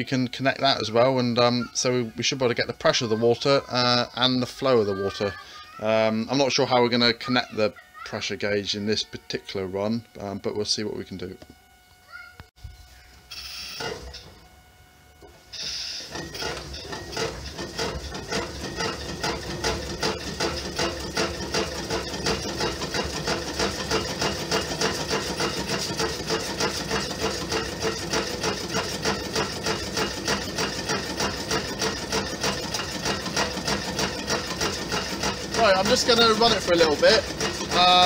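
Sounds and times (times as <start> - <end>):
stirling engine rhythmic clatter: 16.0 - 38.0.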